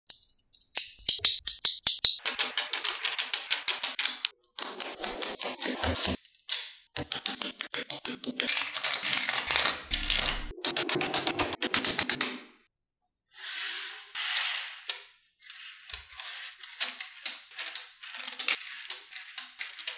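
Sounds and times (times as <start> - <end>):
magnetic balls clicking together: 0.1 - 12.4, 16.8 - 19.9.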